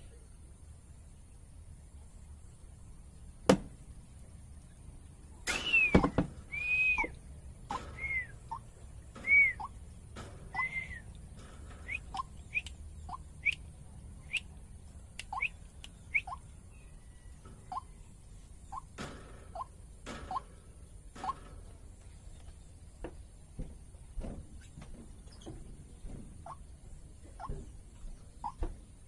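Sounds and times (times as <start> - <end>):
waterhen calling: 5.5 - 9.9, 10.5 - 13.7, 15.2 - 16.6.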